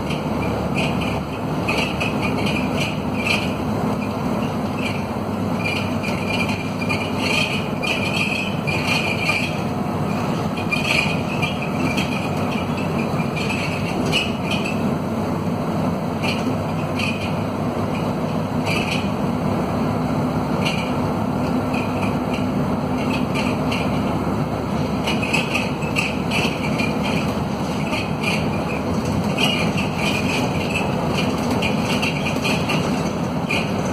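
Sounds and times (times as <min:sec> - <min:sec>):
diesel bus engine under load: 0:00.0 - 0:33.9
body panels and windows rattling: 0:25.0 - 0:33.9.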